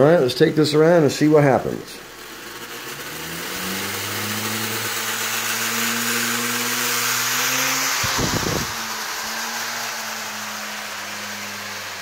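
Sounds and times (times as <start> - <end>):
model motor spinning propeller: 0.0 - 12.0
whoosh of air: 7.8 - 11.6.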